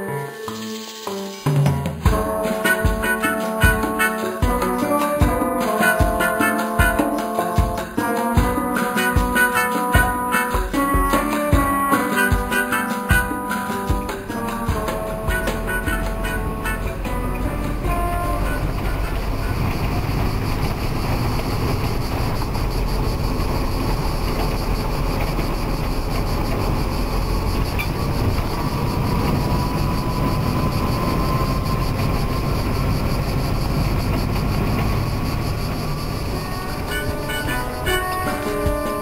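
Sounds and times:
faint whine: 0:13.3 - 0:39.0
vehicle engine and road noise: 0:14.0 - 0:38.8.

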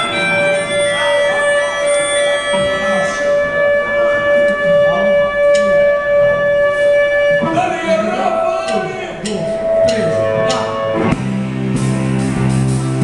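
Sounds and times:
long high held note: 0:00.0 - 0:11.1
live rock band playing: 0:09.4 - 0:13.0.

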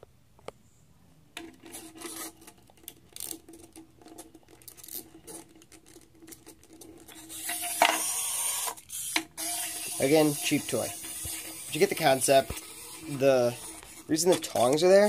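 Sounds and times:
wind-up toy ratcheting clicks: 0:01.7 - 0:15.0
spring motor mechanical buzz: 0:07.1 - 0:14.8.

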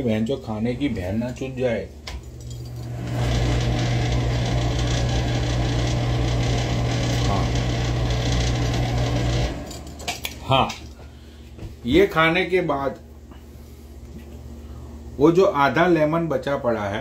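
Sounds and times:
kitchen appliance motor humming: 0:02.2 - 0:10.5.

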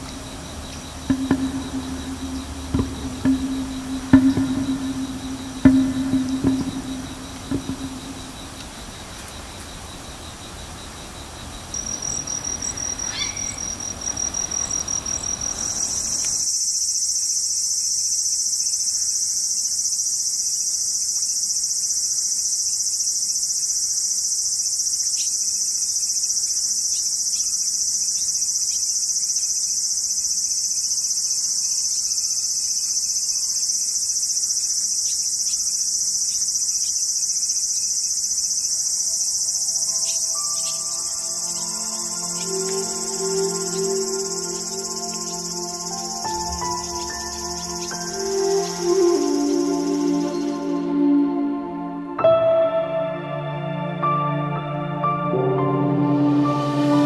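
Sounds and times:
high pulsing insect trill: 0:00.0 - 0:52.2
high-pitched insect chorus: 0:00.0 - 0:52.2.

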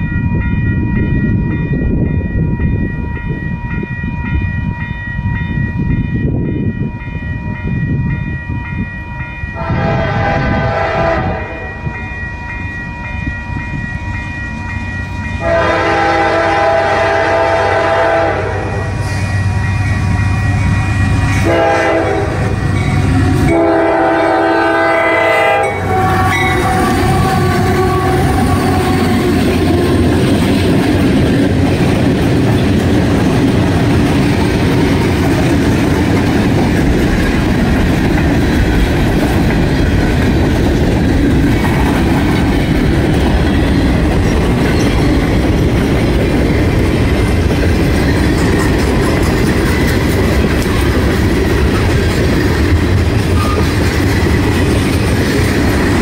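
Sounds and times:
diesel locomotive engines: 0:00.0 - 0:56.0
train wheels clacking over rails: 0:25.8 - 0:56.0.

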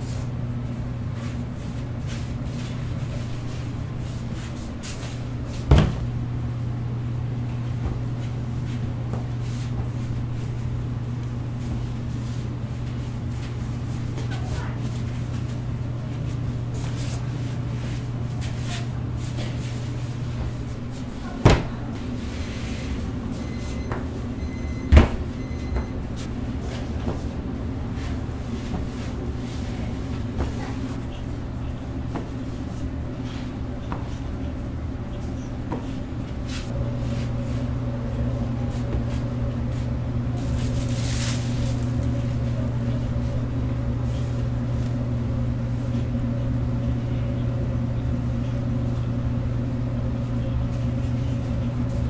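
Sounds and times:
low machine hum: 0:00.0 - 0:52.0.

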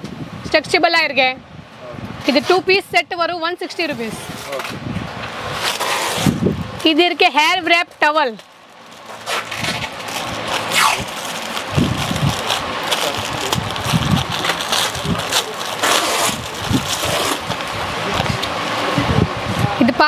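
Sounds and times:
plastic packaging crinkling: 0:07.7 - 0:18.2.

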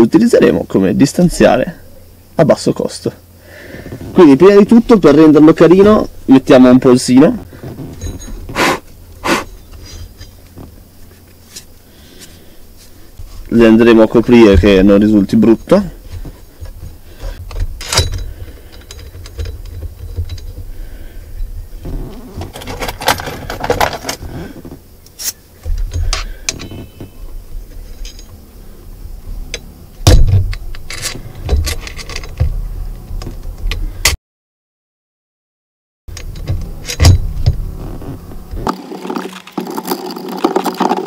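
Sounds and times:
metal bolts clinking and rattling: 0:07.8 - 0:08.5, 0:16.8 - 0:20.7, 0:28.0 - 0:28.4, 0:30.5 - 0:32.5.

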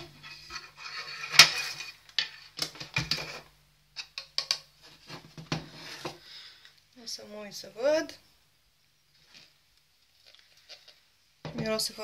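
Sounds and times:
spoon scraping bowl: 0:00.0 - 0:02.0.

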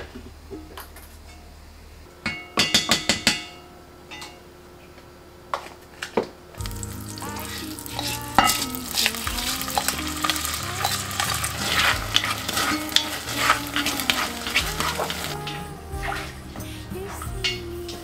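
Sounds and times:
rice sizzling in butter: 0:06.6 - 0:15.5
wooden spoon scraping pot: 0:07.4 - 0:15.4.

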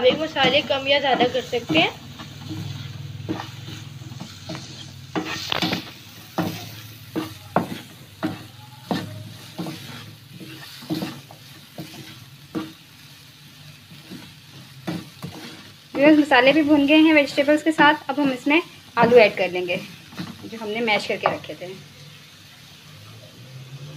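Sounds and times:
wooden spatula scraping a pan: 0:00.0 - 0:21.8
food sizzling in oil: 0:00.0 - 0:23.9.

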